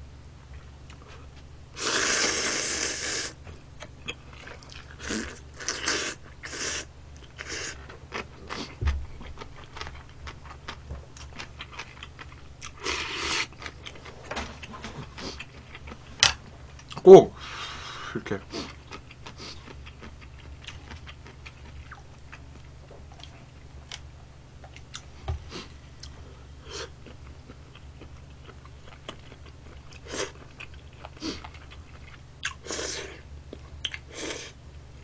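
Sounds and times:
person blowing on noodles: 0:01.8 - 0:03.4, 0:05.0 - 0:07.8
chewing: 0:03.8 - 0:06.6, 0:07.2 - 0:17.0, 0:18.6 - 0:24.0, 0:26.8 - 0:32.6.

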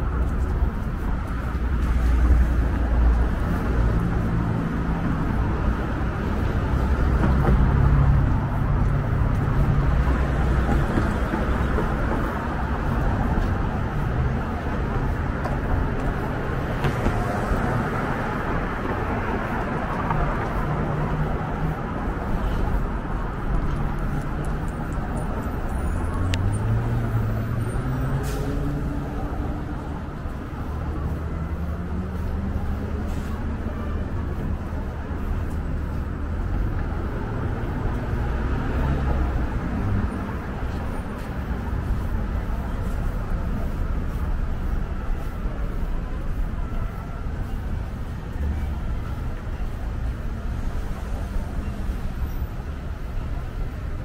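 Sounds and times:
cars passing: 0:00.0 - 0:54.0.

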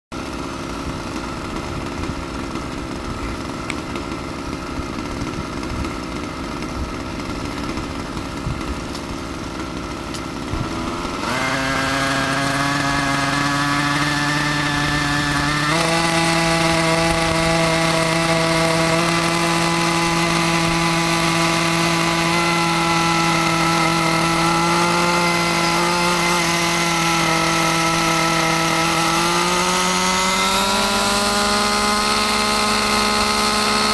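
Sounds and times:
model helicopter engine idling rough: 0:00.2 - 0:11.4
engine and rotor whine: 0:00.2 - 0:33.9.

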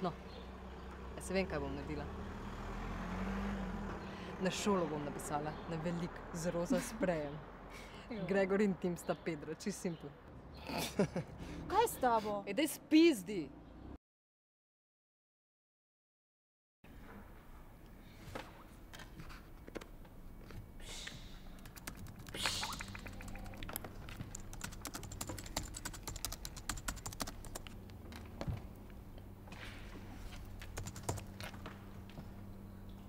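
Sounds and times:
computer keyboard typing: 0:21.6 - 0:27.8, 0:30.6 - 0:31.5.

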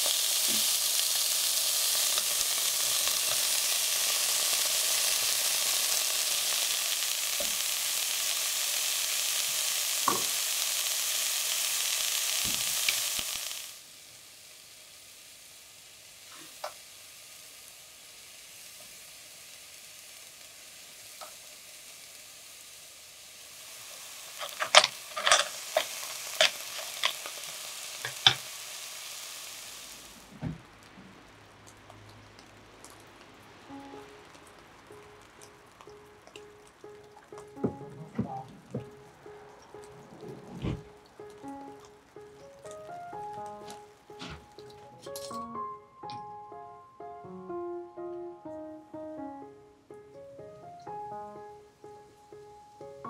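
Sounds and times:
food sizzling in oil: 0:00.0 - 0:45.4
wooden spatula stirring pot: 0:24.4 - 0:28.4.

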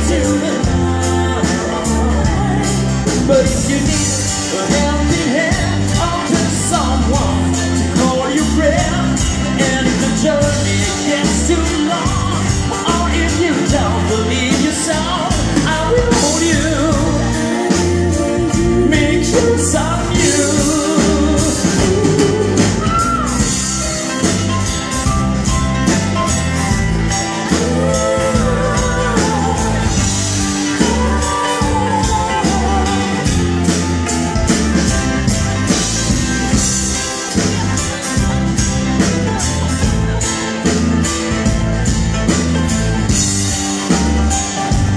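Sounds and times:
person singing: 0:00.0 - 0:24.0, 0:27.1 - 0:34.4
drum kit: 0:00.0 - 0:44.9
electric guitar: 0:00.0 - 0:44.9.

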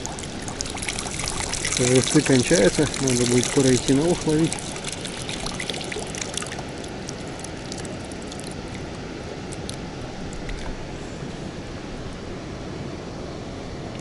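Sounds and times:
water sloshing from plastic bottle: 0:00.0 - 0:08.8
light water drips: 0:00.0 - 0:10.8
steady background hiss: 0:00.0 - 0:14.0.

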